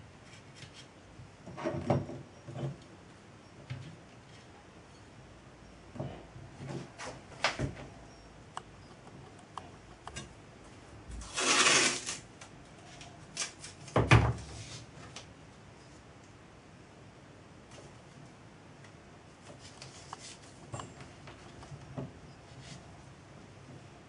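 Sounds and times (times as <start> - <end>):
masking tape pulled off roll: 11.2 - 12.3.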